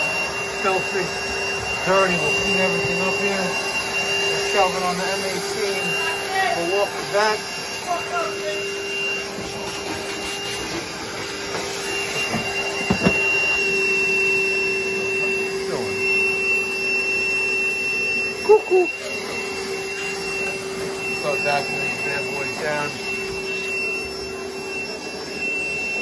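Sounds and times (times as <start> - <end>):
vacuum cleaner whining: 0.0 - 26.0
knock: 12.3 - 13.2.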